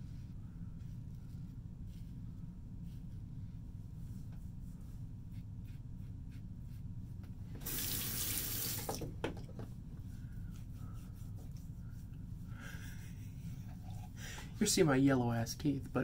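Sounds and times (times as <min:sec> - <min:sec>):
low room hum: 0:00.0 - 0:16.0
tap water rushing into basin: 0:07.6 - 0:09.1.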